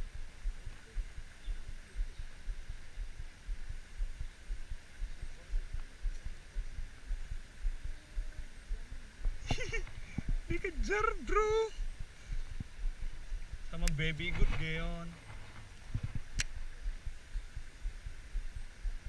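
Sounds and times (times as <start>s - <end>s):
faint hiss: 0.0s - 19.0s
wind buffeting microphone: 0.0s - 19.0s
sharp click: 16.3s - 16.6s.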